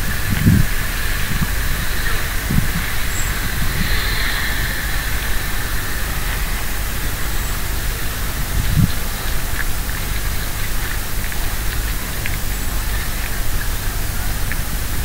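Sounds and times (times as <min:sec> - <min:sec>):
low rumble: 0:00.0 - 0:10.8
rain hissing: 0:00.0 - 0:15.0.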